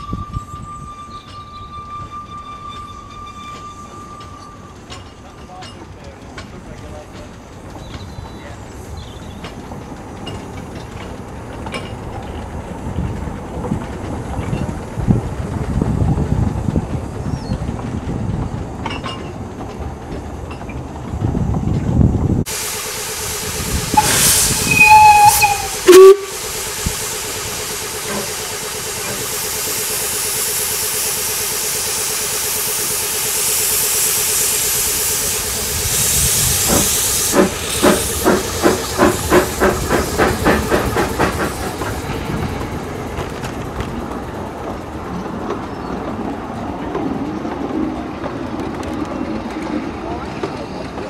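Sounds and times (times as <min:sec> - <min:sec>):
steam whistle toots: 0:00.0 - 0:04.9, 0:22.5 - 0:38.4
steam locomotive exhaust beats: 0:00.0 - 0:51.0
train coaches rolling past: 0:00.0 - 0:51.0
steam hissing: 0:22.5 - 0:46.1
loud whistle blast: 0:24.0 - 0:26.4.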